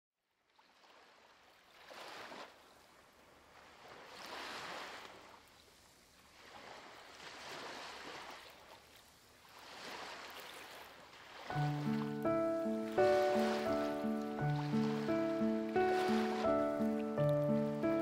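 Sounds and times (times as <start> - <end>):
faint ocean surf: 0.8 - 18.0.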